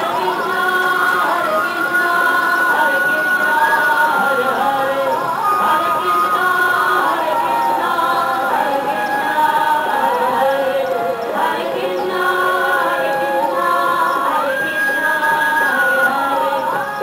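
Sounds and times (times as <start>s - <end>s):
choir singing held notes: 0.0s - 17.0s.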